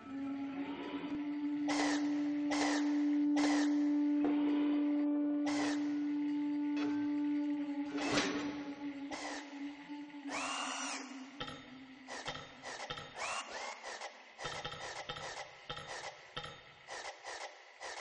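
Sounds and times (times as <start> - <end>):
scraping and clicking strokes: 12.1 - 18.0.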